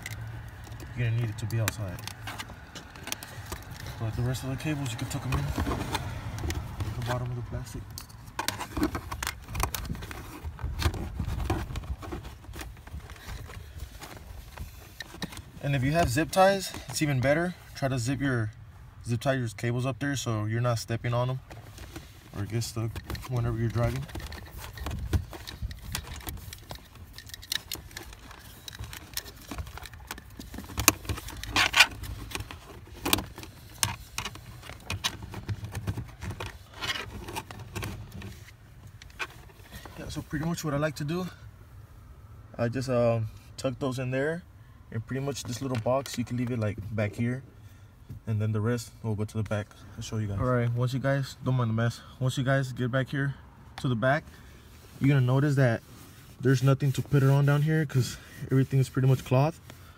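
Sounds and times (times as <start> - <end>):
cable and plastic clicks and scrapes: 0.0 - 18.6, 20.8 - 41.3, 45.0 - 47.4, 54.9 - 59.9.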